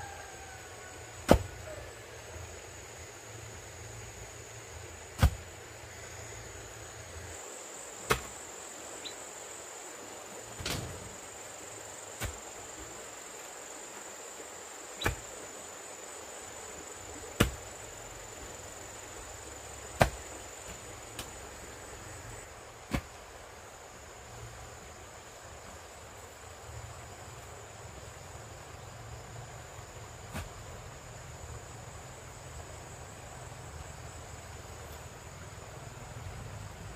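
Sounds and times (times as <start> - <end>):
tool striking bamboo: 1.3 - 1.5, 5.2 - 5.4, 8.1 - 8.3, 15.0 - 15.2, 17.4 - 17.6, 20.0 - 21.3.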